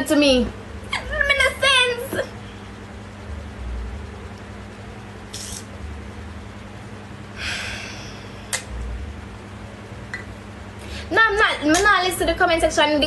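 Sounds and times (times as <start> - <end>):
low steady hum: 0.0 - 13.0
woman breathing: 7.3 - 8.5, 10.8 - 11.1.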